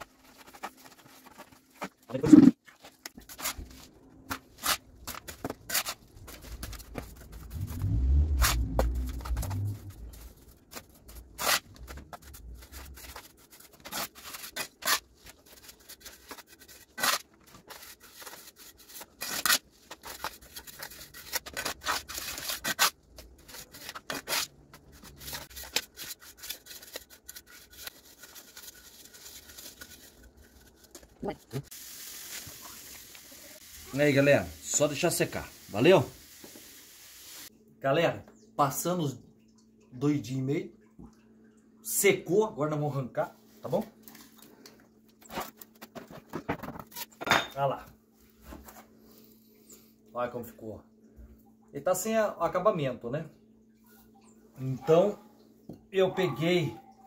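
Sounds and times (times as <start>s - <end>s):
trowel scraping mortar in basin: 0.4s - 2.6s
low rumble: 7.3s - 10.4s.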